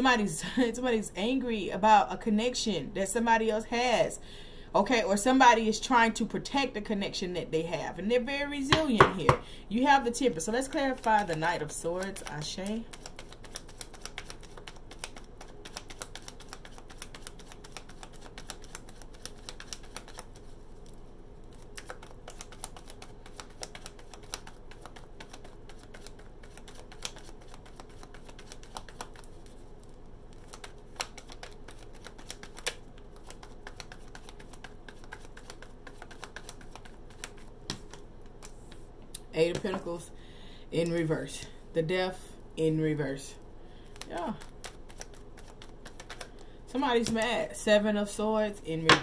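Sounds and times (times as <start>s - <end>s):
cards being shuffled: 10.4s - 38.9s, 43.8s - 47.3s.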